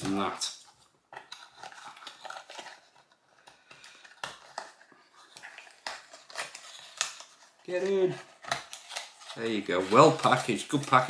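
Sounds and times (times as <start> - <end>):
packaging rustling and crinkling: 0.0 - 11.0.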